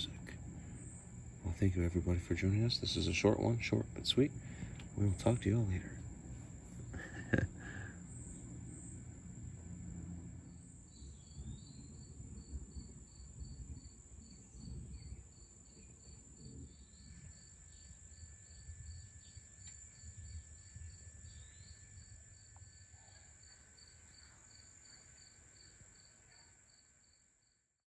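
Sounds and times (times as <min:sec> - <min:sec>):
crickets chirping: 0:00.0 - 0:27.6
high-pitched insect trill: 0:06.8 - 0:27.6.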